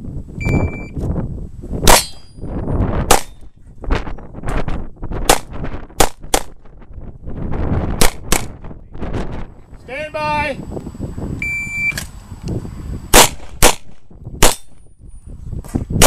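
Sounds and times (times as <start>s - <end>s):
handgun shots: 1.9s - 2.3s, 3.1s - 3.4s, 13.2s - 14.8s.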